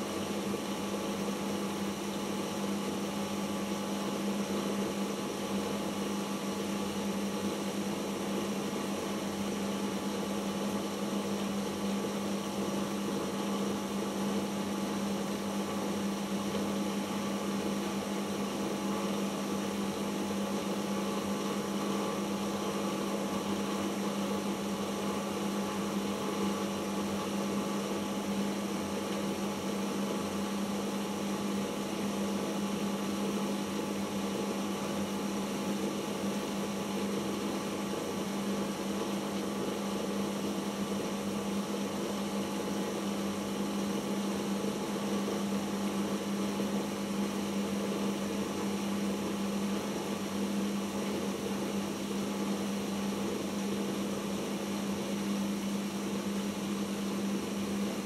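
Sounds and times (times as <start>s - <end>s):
washing machine spinning: 0.0s - 58.0s.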